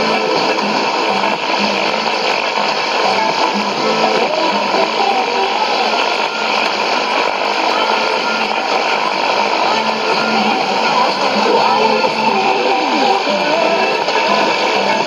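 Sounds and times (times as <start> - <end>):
faint radio programme: 0.0 - 15.0
radio static: 0.0 - 15.0.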